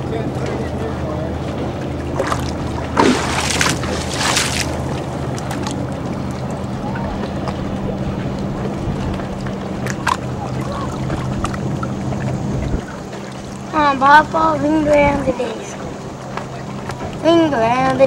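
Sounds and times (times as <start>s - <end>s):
boat engine idling: 0.0s - 18.0s
water noise: 0.0s - 18.0s
wind: 0.0s - 18.0s.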